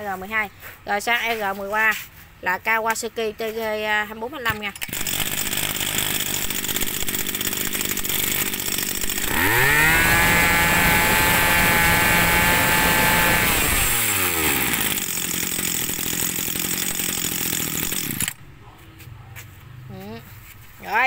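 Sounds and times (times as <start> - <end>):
brush cutter engine revving: 4.8 - 18.4.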